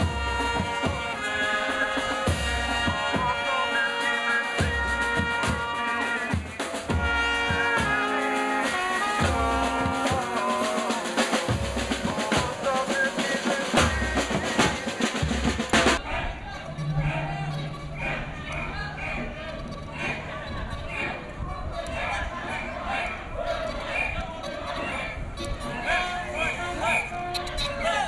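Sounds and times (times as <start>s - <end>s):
snare drums: 0.0s - 16.0s
trumpets and trombones: 0.0s - 28.0s
bass drum beating: 11.4s - 12.9s.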